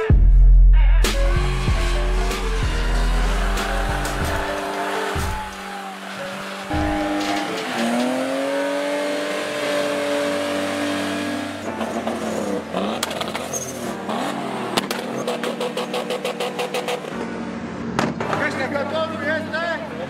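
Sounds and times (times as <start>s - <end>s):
car engine revving hard: 1.1s - 17.1s
tyres spinning: 1.2s - 9.1s.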